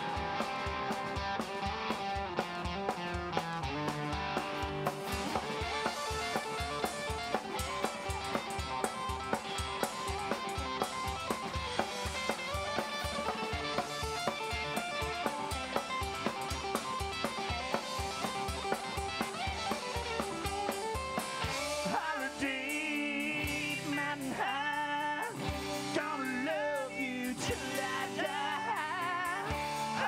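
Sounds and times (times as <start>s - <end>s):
electric guitars: 0.0s - 30.0s
steady drum beat: 0.0s - 30.0s
man singing: 21.6s - 30.0s.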